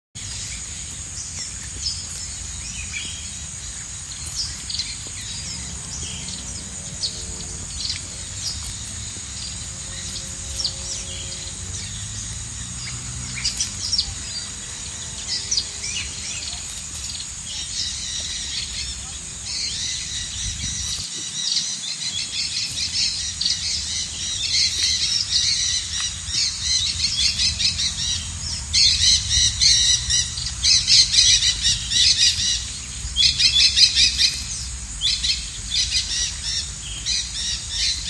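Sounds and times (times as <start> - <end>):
low steady rumble: 0.2 - 21.1
crickets trilling: 0.2 - 38.0.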